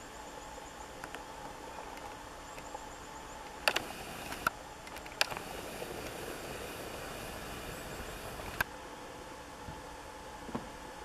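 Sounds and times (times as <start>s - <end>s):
low background hiss: 0.0s - 11.0s
camera clicks: 3.6s - 6.2s.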